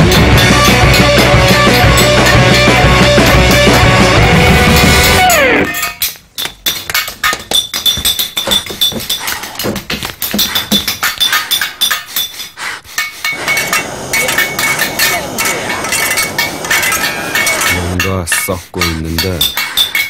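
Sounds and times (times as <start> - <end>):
metallic clinking and clicking: 5.2 - 20.0
thin high ringing tone: 13.0 - 18.5.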